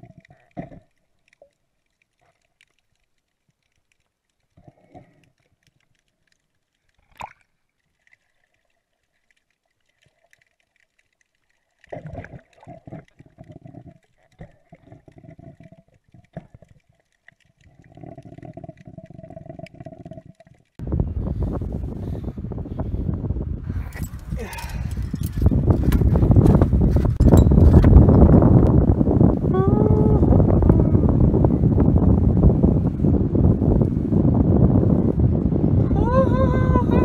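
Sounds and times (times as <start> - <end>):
underwater gurgling and bubbling: 0.0 - 1.0, 11.8 - 22.5, 24.3 - 37.0.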